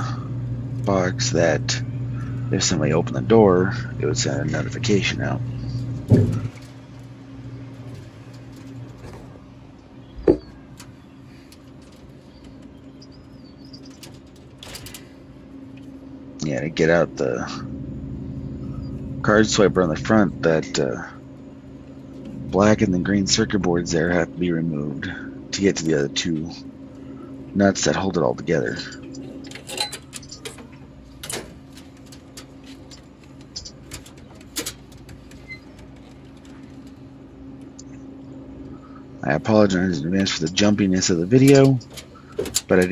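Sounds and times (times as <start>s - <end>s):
steady low hum: 0.0s - 42.9s
small clicks and rustles: 5.5s - 16.2s, 28.9s - 38.8s, 41.4s - 42.9s.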